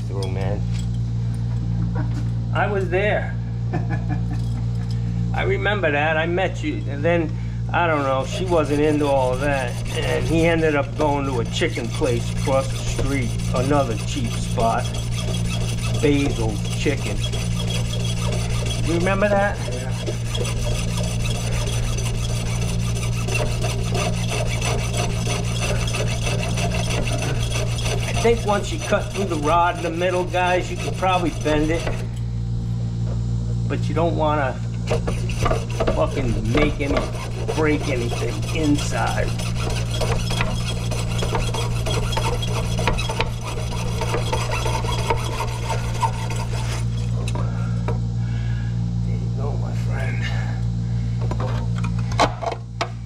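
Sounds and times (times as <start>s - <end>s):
hacksaw cutting metal rod: 7.9s - 32.1s, 34.9s - 47.4s.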